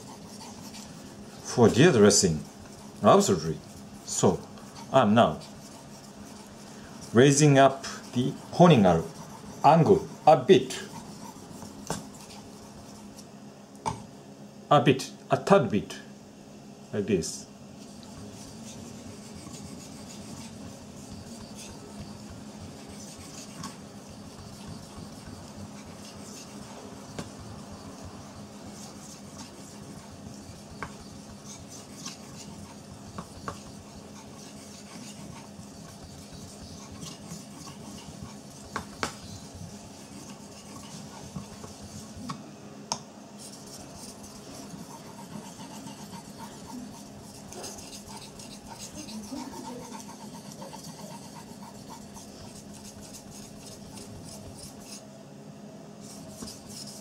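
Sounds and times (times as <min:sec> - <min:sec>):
knife scraping on whetstone: 0:17.9 - 0:42.2, 0:43.5 - 0:55.0.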